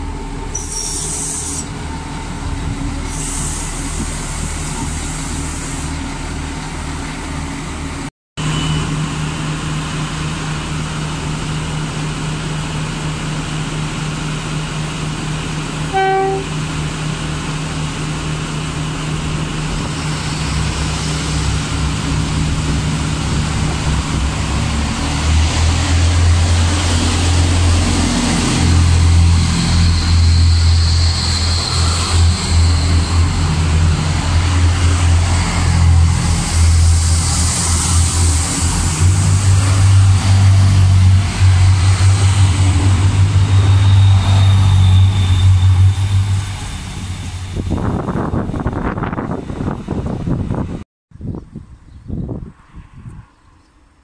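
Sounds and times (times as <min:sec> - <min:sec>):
diesel train engine drone: 0:00.0 - 0:50.8
train horn toot: 0:15.9 - 0:16.6.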